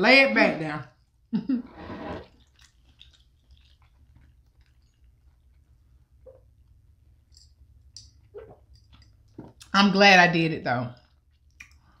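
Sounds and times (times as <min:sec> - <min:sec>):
faint chewing: 0:02.2 - 0:09.8, 0:11.0 - 0:12.0
soft mouth clicks: 0:11.4 - 0:11.8.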